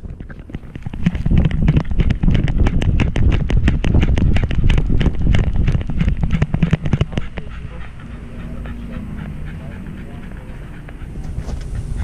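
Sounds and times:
camera rattling on harness: 0.0 - 7.5
low rumble: 0.0 - 12.0.

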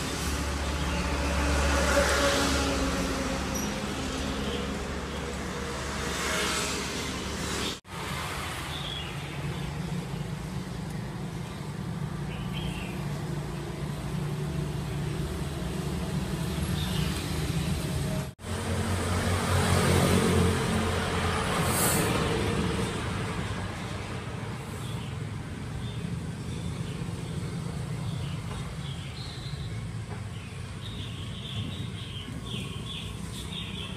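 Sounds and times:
road traffic engine rumble: 0.0 - 33.9
heavy vehicle passing: 13.2 - 25.3.

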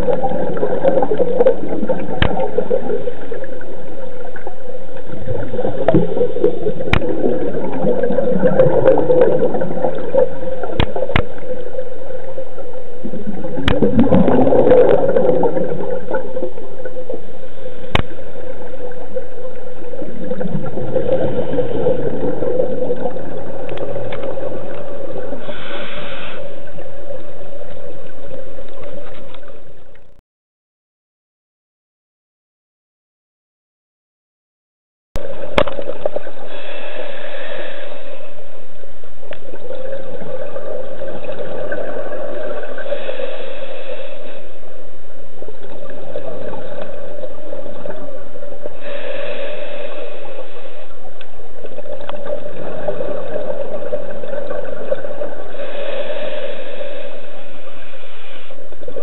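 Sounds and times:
regulator bubbles gurgling: 0.0 - 30.2, 35.2 - 59.0
steady hum: 35.2 - 59.0.

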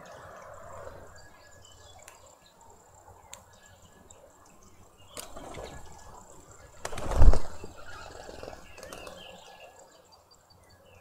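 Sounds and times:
birds chirping: 0.0 - 11.0
wings fluttering: 4.6 - 9.6.

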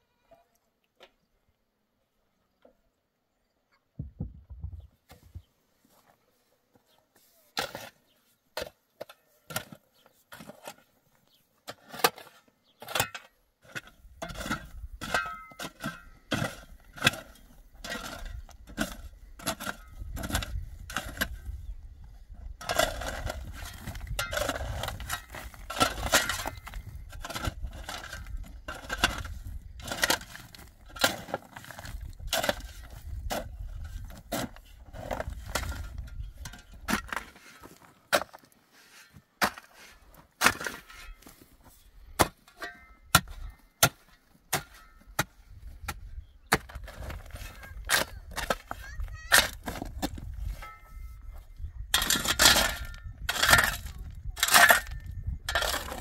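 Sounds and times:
steel bar striking rocky ground: 11.7 - 21.6, 22.6 - 41.4, 42.2 - 56.0.

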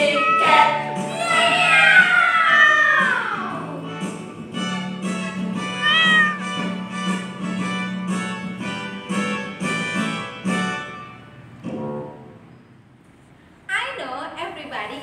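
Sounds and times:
cat meowing: 0.0 - 0.8, 5.6 - 6.6.

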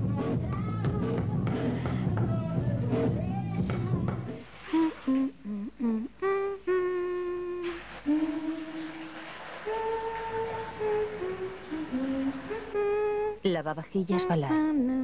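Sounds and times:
loud music with drums: 0.0 - 4.4
person humming a tune: 0.0 - 8.9, 9.7 - 13.5, 14.1 - 15.0.

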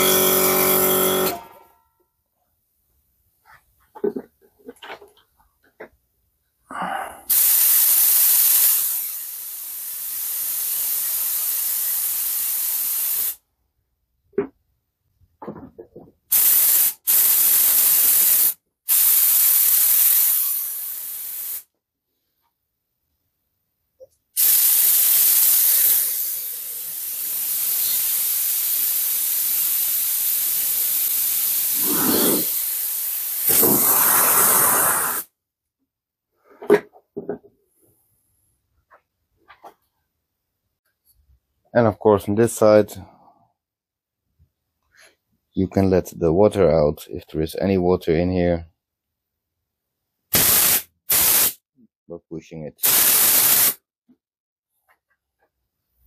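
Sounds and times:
compressed air hissing: 7.2 - 13.4, 16.3 - 21.6, 24.4 - 35.3, 50.3 - 51.6, 52.8 - 53.8.

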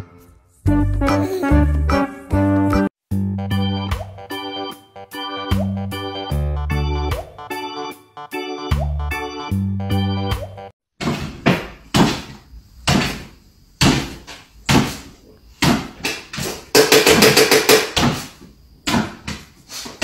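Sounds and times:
knocking: 15.6 - 18.3.

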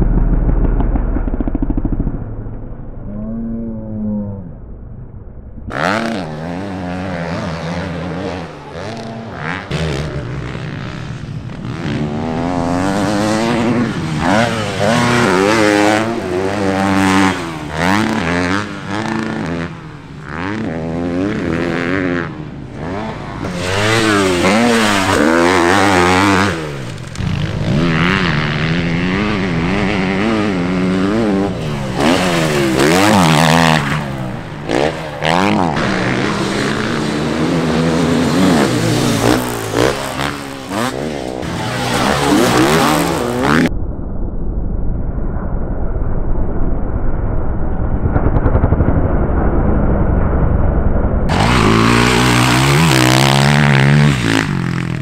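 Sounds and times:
motocross bike engines revving: 5.7 - 43.7, 51.3 - 55.0.

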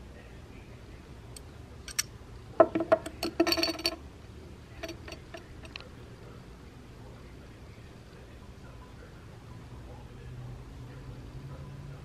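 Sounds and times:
metal buckle clinking on wood: 1.9 - 4.0, 4.8 - 5.8.

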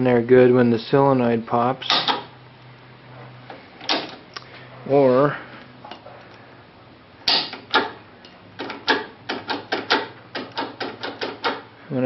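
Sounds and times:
spring handle clicking: 1.9 - 2.3.

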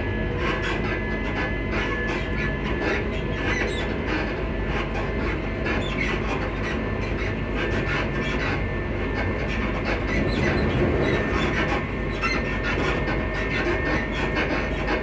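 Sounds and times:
electric train motor whine: 0.0 - 15.0
wheels rumbling on rails: 9.4 - 15.0.

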